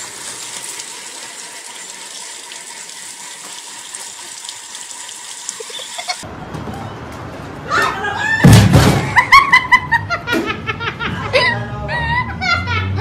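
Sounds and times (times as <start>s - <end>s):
hose water spraying and splashing: 0.0s - 6.2s.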